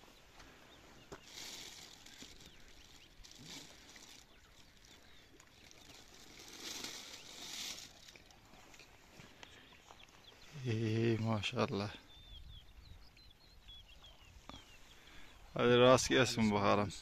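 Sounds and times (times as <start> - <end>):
plastic bag rustling: 1.1 - 8.4.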